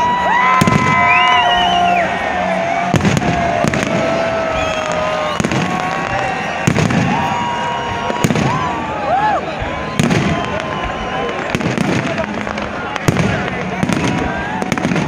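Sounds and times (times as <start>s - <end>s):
fireworks crackling: 0.0s - 15.0s
fireworks whistling: 0.0s - 15.0s
firework shells booming: 2.9s - 7.4s, 9.9s - 15.0s.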